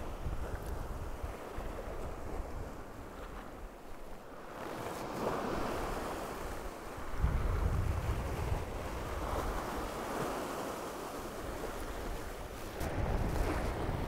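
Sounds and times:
wind on microphone: 0.0s - 14.0s
surf washing over rocks: 4.6s - 14.0s.

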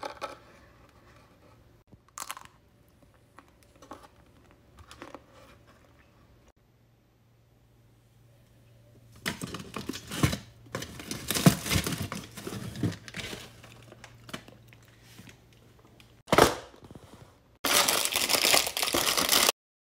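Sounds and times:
cardboard packaging rustling: 9.2s - 15.4s, 17.7s - 19.5s
paper wrapper tearing: 17.6s - 19.5s.

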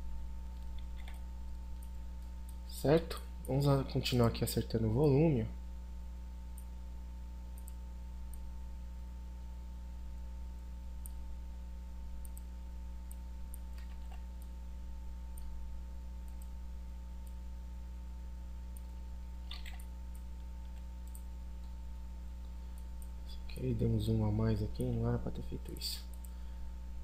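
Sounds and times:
low electrical hum: 0.0s - 27.0s
faint mouse clicks: 7.5s - 8.4s, 12.2s - 14.5s, 16.2s - 16.6s, 19.5s - 21.8s.

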